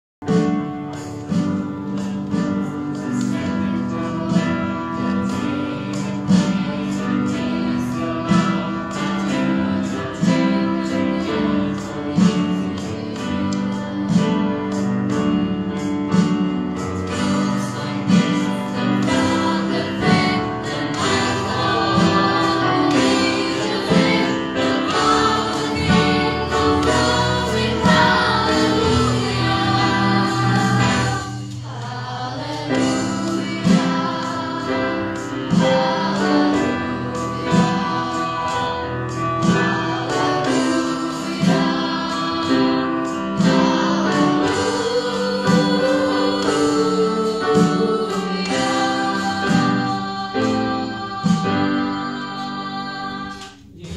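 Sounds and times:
keyboard and guitar chords: 0.2s - 53.9s
children singing: 3.0s - 14.8s, 17.1s - 53.9s
electronic drum beat: 16.2s - 38.8s.

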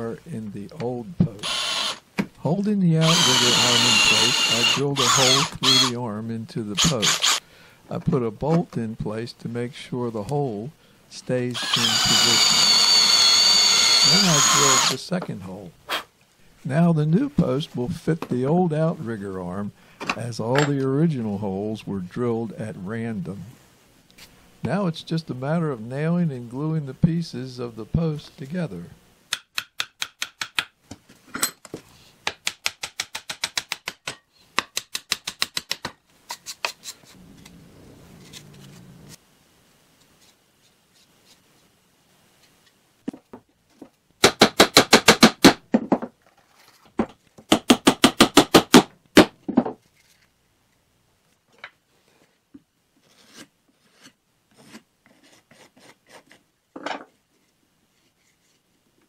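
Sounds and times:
hammer driving nails into wood: 32.2s - 36.0s, 44.2s - 46.0s, 47.5s - 49.4s.

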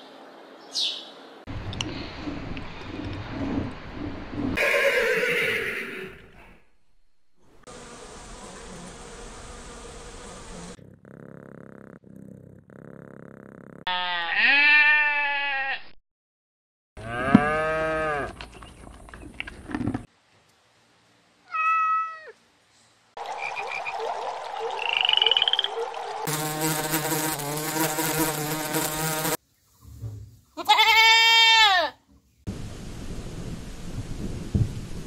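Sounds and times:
goat bleating: 13.9s - 15.9s, 30.6s - 32.0s
frog calls: 23.2s - 25.9s.

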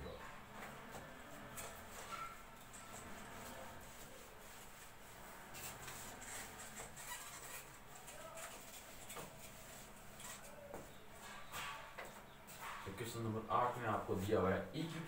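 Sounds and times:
whiteboard being wiped: 0.8s - 10.9s.

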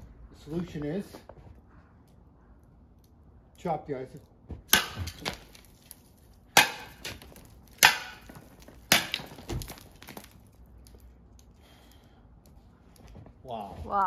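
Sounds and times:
shovel chopping ice: 4.7s - 5.7s, 6.6s - 10.2s
ice pieces falling: 5.0s - 11.0s.

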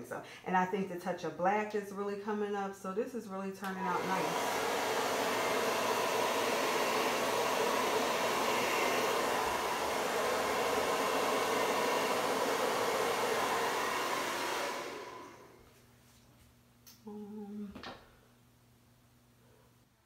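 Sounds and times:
hair dryer blowing: 3.6s - 15.6s.

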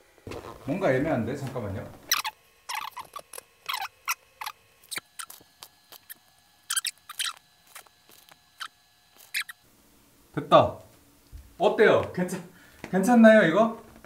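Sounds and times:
paper and crust crinkling: 4.9s - 9.6s.

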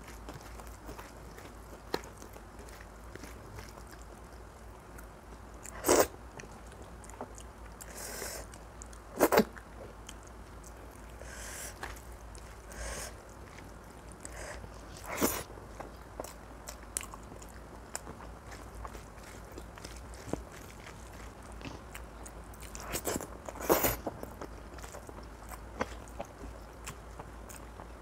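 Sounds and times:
soft chewing: 0.0s - 28.0s.

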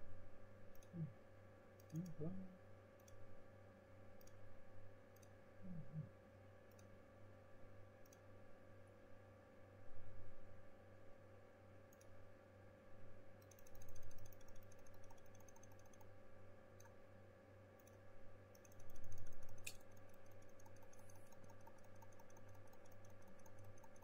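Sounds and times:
steady low hum: 0.0s - 24.0s
keyboard and mouse clicking: 1.8s - 2.3s, 13.4s - 16.2s, 17.8s - 24.0s.

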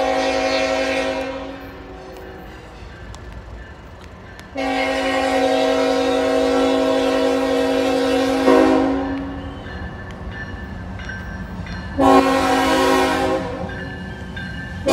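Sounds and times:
locomotive air horn blast: 0.0s - 2.0s, 4.6s - 9.6s, 12.0s - 13.7s
train rumble: 0.0s - 14.9s.

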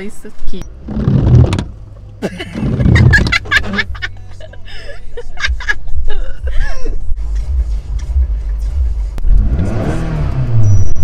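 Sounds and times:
young woman laughing: 2.2s - 7.1s
background music: 3.4s - 10.5s.

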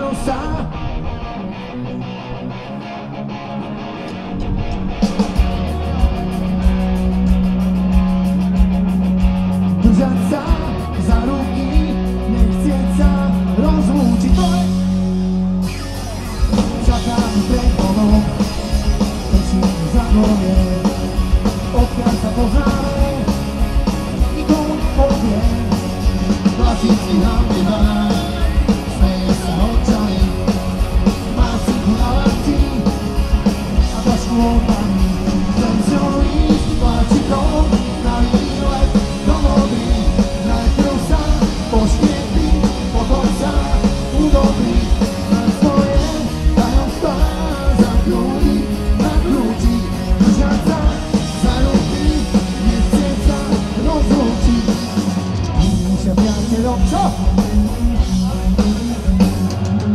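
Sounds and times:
drums: 0.0s - 59.9s
punk rock band playing: 0.0s - 59.9s
person singing: 16.5s - 18.6s, 24.2s - 59.9s.

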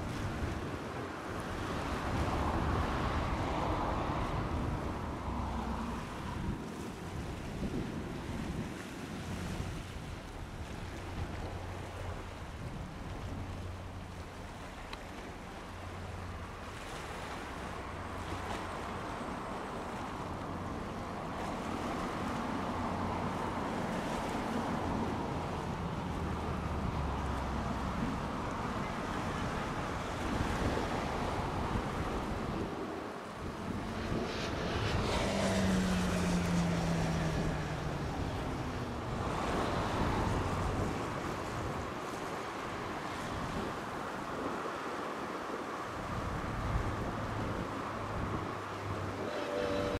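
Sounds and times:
low propeller hum: 0.0s - 44.6s, 45.2s - 49.9s
rushing engine and air noise: 0.0s - 49.9s
turboprop engines droning: 31.8s - 41.8s, 46.7s - 49.9s
broad rushing sound: 31.8s - 42.4s.

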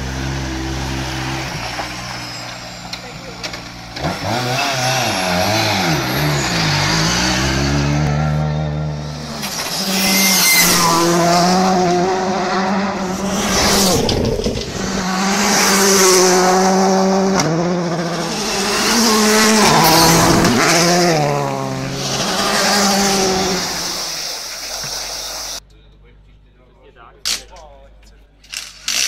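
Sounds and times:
rally car engine revving hard: 3.8s - 24.2s.

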